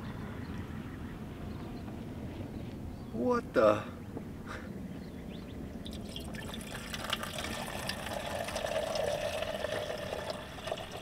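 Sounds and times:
water pouring into metal pot: 5.9s - 11.0s.

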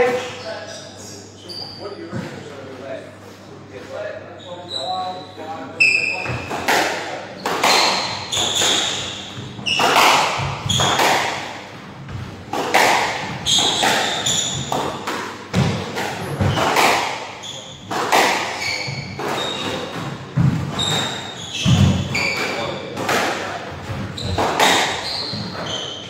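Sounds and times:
sneaker squeaks on wooden floor: 1.4s - 2.5s, 4.4s - 6.6s, 7.4s - 11.5s, 13.2s - 23.1s, 23.8s - 26.0s
squash ball hits echoing: 6.2s - 25.7s.

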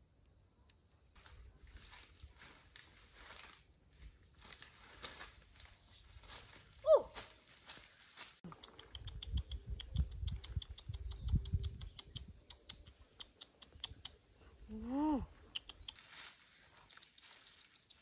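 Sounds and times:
footsteps crunching dry leaves: 1.2s - 8.4s, 15.9s - 18.0s.

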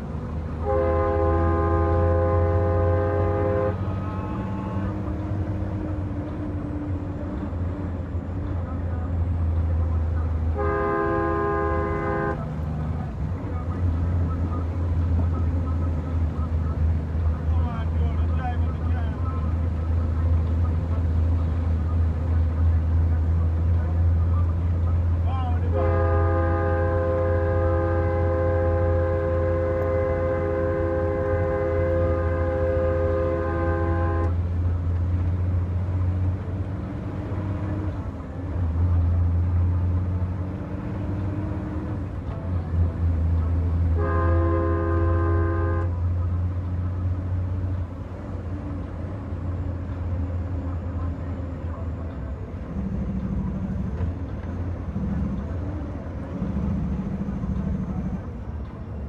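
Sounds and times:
diesel truck engine running: 0.0s - 59.0s
multi-note air horn blasts: 0.6s - 5.1s, 10.5s - 12.5s, 25.7s - 34.4s, 43.9s - 46.1s.

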